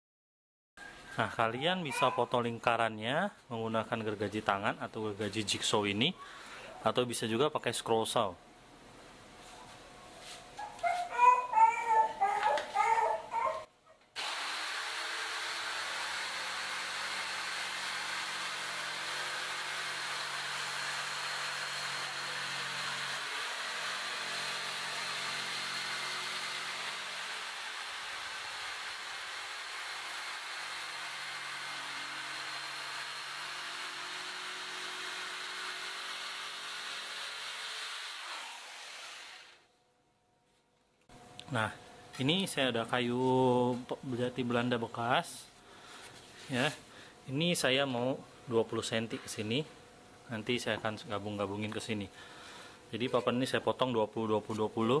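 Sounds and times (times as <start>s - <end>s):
electric jigsaw cutting board: 14.2s - 39.7s.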